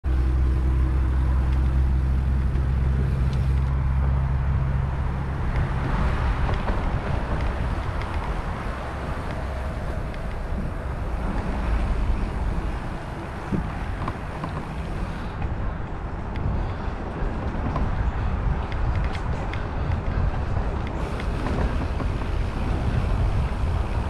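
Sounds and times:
tyres hissing on paved path: 0.1s - 24.0s
wind on microphone: 0.3s - 24.0s
bike tyres rumbling over wooden boards: 16.4s - 24.0s.

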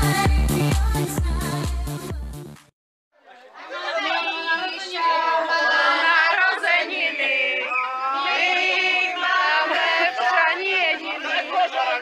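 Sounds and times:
group of people singing: 0.0s - 1.9s, 3.6s - 12.0s.

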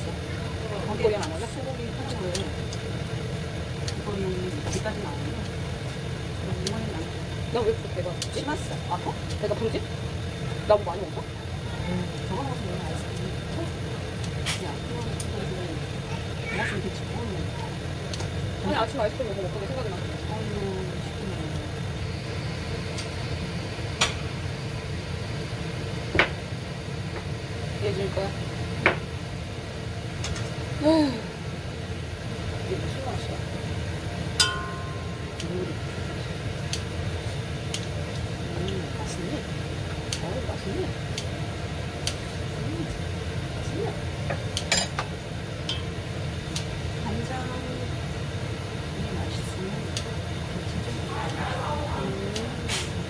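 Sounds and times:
low steady hum: 0.0s - 53.0s
utensils clattering against metal pot: 34.4s - 35.2s, 44.3s - 45.1s.

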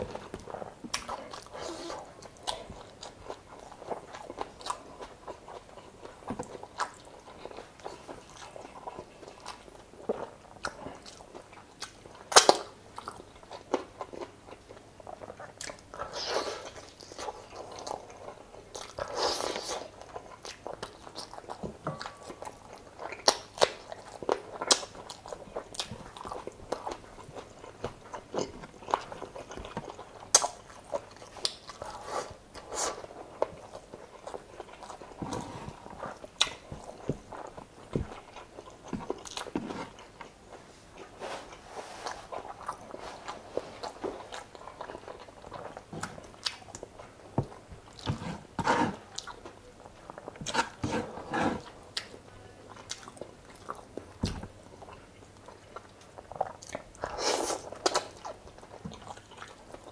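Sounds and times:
chewing and lip smacking: 0.0s - 41.1s, 42.1s - 48.2s, 49.0s - 50.8s, 51.6s - 59.9s.

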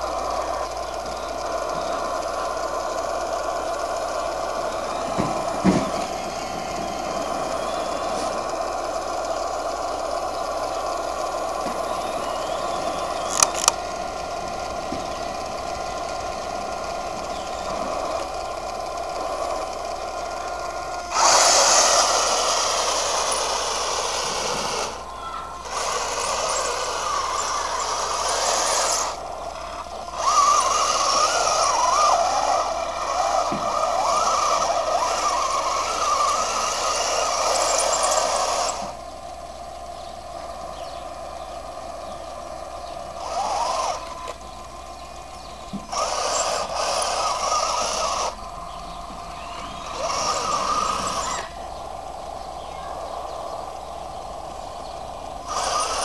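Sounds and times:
sharp clicks: 0.0s - 56.0s
steady electric hum: 0.0s - 56.0s
wavering whine of drive motors: 0.0s - 56.0s.

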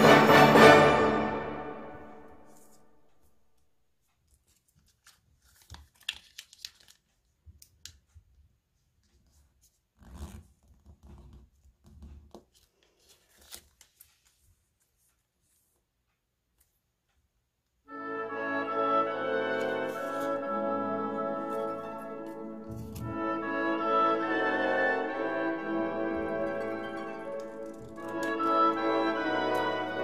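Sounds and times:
background music: 0.0s - 3.0s, 17.9s - 30.0s
paper rustling and creasing: 4.3s - 8.0s, 9.0s - 15.7s, 19.6s - 20.4s, 26.4s - 28.5s.

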